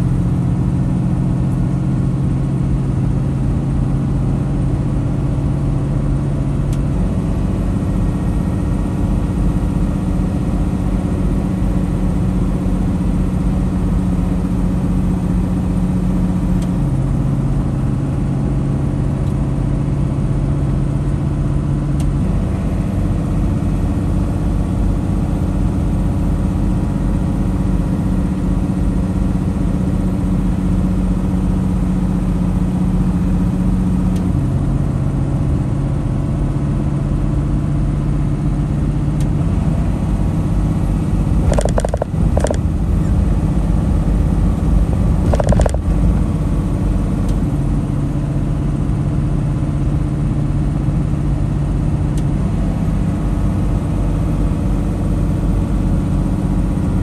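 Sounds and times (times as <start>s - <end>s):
truck diesel engine droning: 0.0s - 57.0s.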